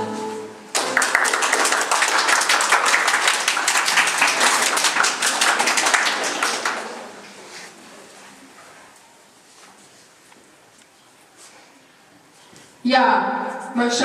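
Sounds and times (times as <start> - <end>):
people applauding: 0.7 - 7.3.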